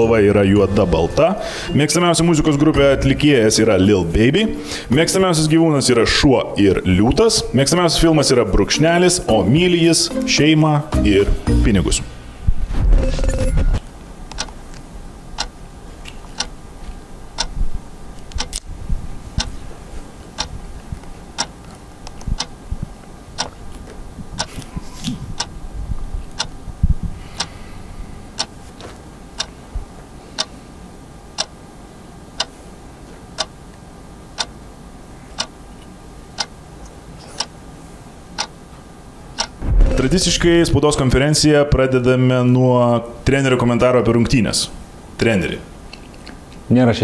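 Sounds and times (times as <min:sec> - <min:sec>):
soft low thumps: 0:11.0 - 0:13.8, 0:26.7 - 0:27.2, 0:39.6 - 0:40.8
clock ticking: 0:15.4 - 0:15.6, 0:22.3 - 0:22.5, 0:31.4 - 0:31.6, 0:35.4 - 0:35.6, 0:36.4 - 0:36.6, 0:38.4 - 0:38.6, 0:39.4 - 0:39.6.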